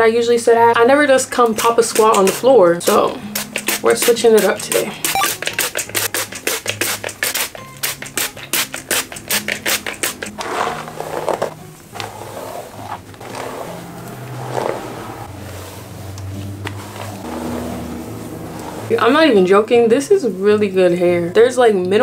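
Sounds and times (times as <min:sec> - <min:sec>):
faint background music: 0:00.0 - 0:22.0
brush scraping through wet hair: 0:01.5 - 0:20.6
spray bottle misting water: 0:01.6 - 0:10.3.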